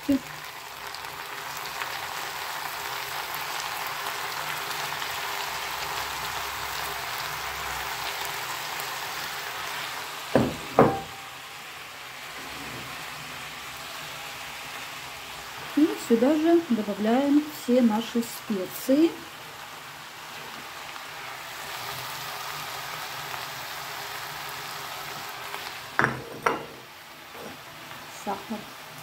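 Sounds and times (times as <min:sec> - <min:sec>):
vegetables sizzling in a pan: 0:00.0 - 0:29.0
sharp knocks: 0:10.4 - 0:11.2.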